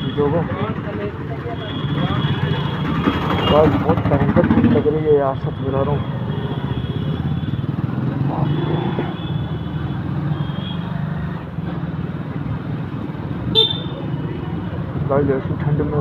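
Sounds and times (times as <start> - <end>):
motorcycle engine running: 0.0 - 5.2.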